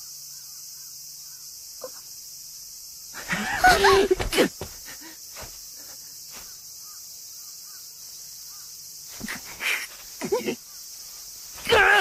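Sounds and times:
insect chorus: 0.0 - 12.0
person's strained outburst: 11.6 - 12.0.

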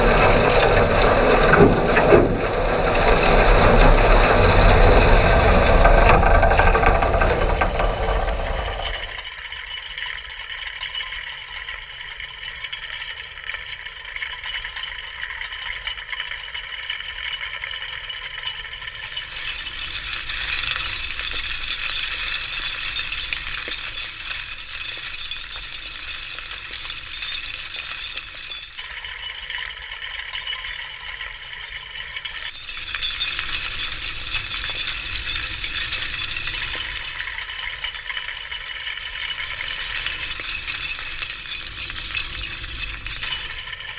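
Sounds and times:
underwater trawl hissing rattle: 0.0 - 9.2, 19.1 - 28.8, 32.5 - 37.4, 39.2 - 43.9.

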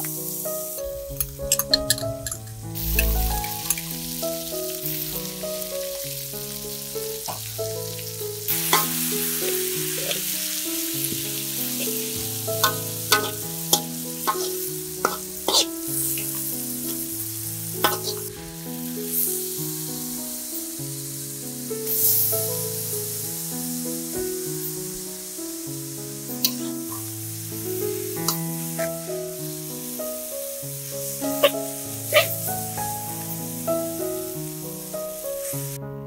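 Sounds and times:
leaves sizzling in a wok: 0.0 - 35.9
background music: 0.3 - 19.3
metal spatula scraping a wok: 12.6 - 16.4, 17.8 - 18.3.

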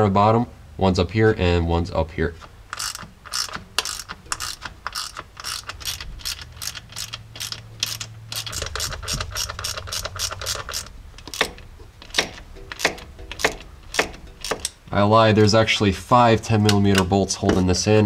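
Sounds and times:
hand ratchet clicking: 2.4 - 14.8.

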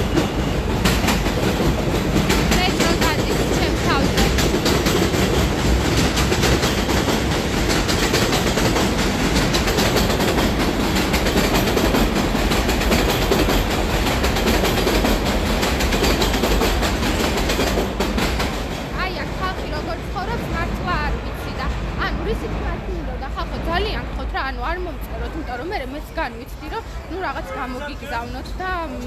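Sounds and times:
wheels clattering over rail joints: 0.0 - 20.5
elevated train rumbling overhead: 0.0 - 29.0.

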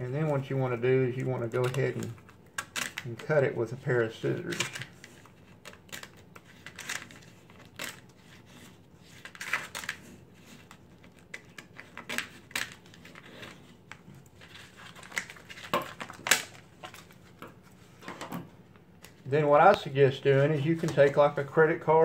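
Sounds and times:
scissors snipping vinyl sheet: 1.1 - 13.6.

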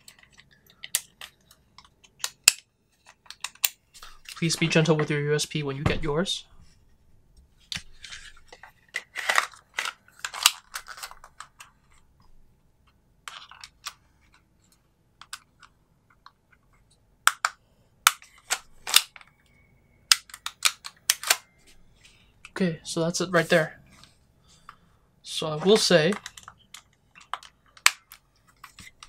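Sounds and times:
plastic pistol parts clicking: 0.1 - 4.4, 17.2 - 19.3, 20.1 - 21.5, 26.1 - 29.0.

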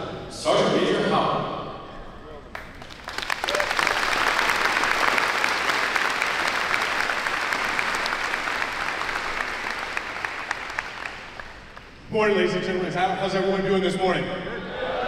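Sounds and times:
large crowd applauding: 2.5 - 12.0.

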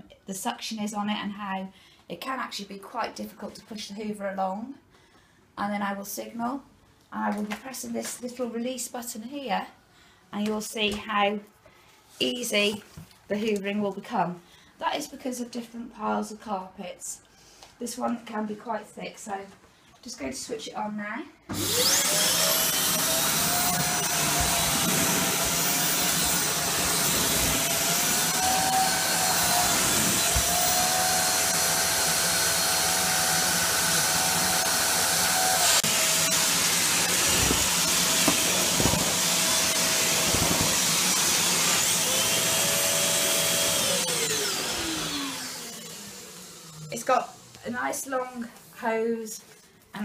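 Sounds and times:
vacuum cleaner running: 21.5 - 47.6
motor spinning down: 21.6 - 47.5.

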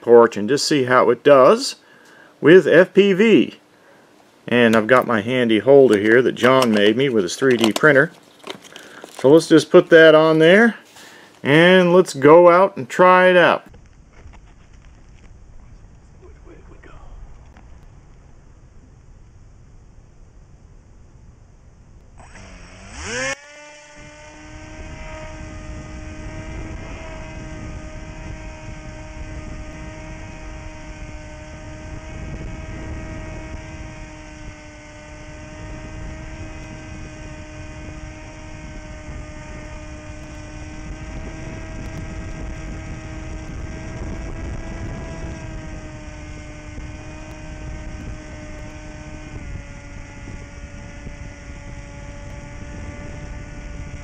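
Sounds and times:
electric plane motor buzzing: 22.2 - 54.0.

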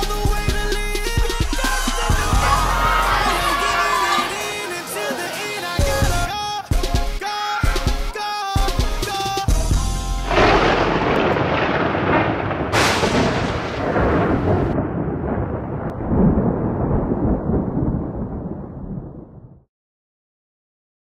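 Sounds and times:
loud rumble: 10.3 - 19.5.

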